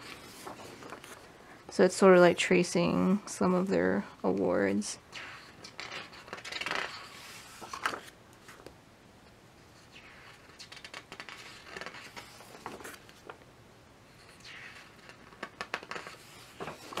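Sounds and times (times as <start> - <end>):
book page rustling: 0.0 - 1.3, 5.6 - 8.7, 9.9 - 13.4, 14.4 - 17.0.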